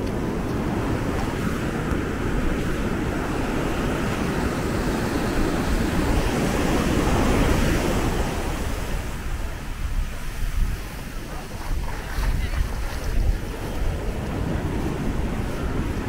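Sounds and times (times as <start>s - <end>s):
surf washing onto beach: 0.0s - 16.0s
wind rumbling on microphone: 0.0s - 16.0s.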